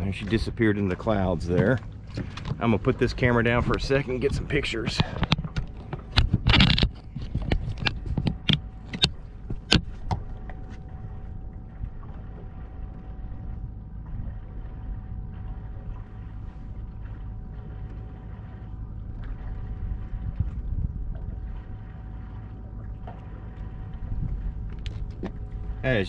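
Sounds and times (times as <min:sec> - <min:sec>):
faint steady hum: 0:00.0 - 0:26.0
wind and water rumble: 0:00.0 - 0:26.0
sharp clicks and knocks: 0:03.6 - 0:10.6.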